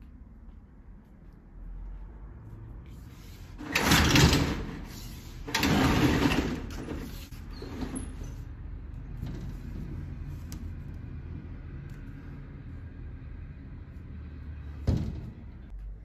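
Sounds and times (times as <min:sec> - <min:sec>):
roller shutter slats rattling: 0:03.6 - 0:10.3.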